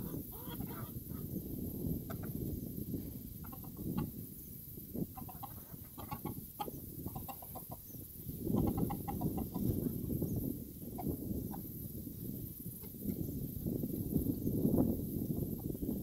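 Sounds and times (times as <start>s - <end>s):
chickens clucking: 0.0s - 11.9s, 12.5s - 13.3s
wind rumbling on microphone: 0.0s - 16.0s.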